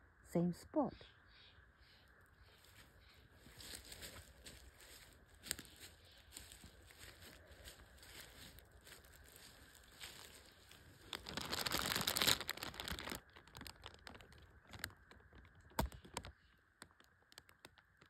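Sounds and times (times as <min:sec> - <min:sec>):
plastic bag crackles: 0:05.4 - 0:16.4
plastic bag crinkling: 0:07.7 - 0:16.3.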